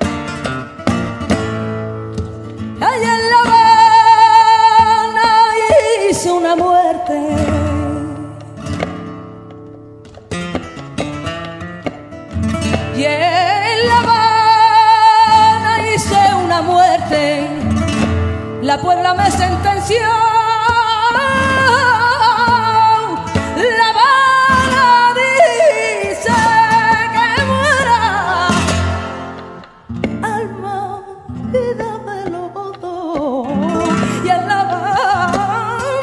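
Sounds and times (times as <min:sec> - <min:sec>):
flamenco guitar: 0:00.0 - 0:36.0
woman singing ornamented phrases: 0:02.8 - 0:08.6, 0:12.9 - 0:29.4, 0:30.1 - 0:36.0.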